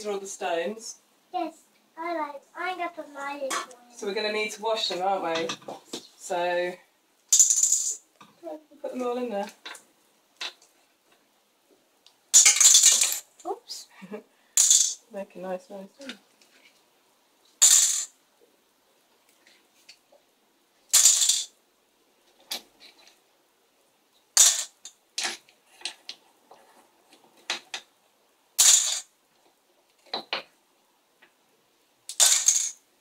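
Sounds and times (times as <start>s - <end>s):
stones clattering into metal colander: 12.4s - 13.3s, 14.6s - 15.0s, 20.9s - 21.5s, 28.6s - 29.1s, 32.1s - 32.8s
stones clinking in colander: 12.4s - 13.3s, 32.1s - 32.8s.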